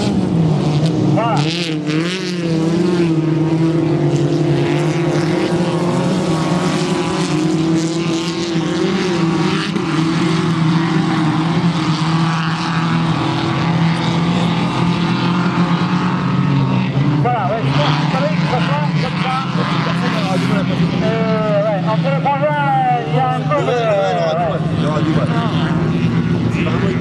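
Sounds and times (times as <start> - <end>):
race car engines running: 0.0 - 27.0.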